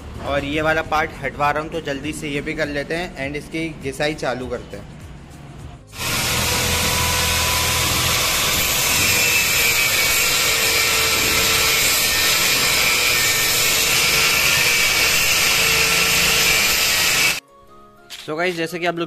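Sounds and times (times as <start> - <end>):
angle grinder grinding metal: 5.9 - 17.4.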